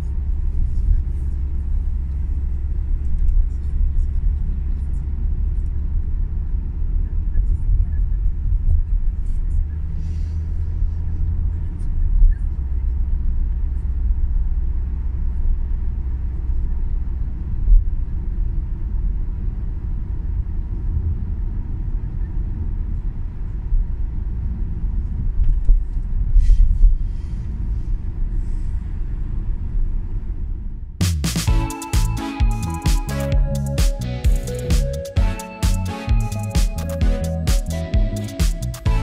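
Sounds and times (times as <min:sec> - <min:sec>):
car driving rumble: 0:00.0 - 0:31.1.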